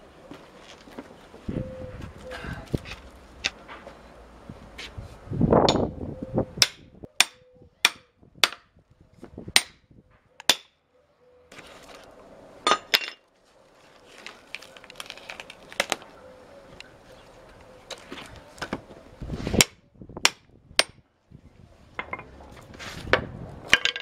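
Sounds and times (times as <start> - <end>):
hammer striking axe head: 6.6 - 8.6, 9.6 - 9.8, 10.4 - 10.8, 19.6 - 21.0.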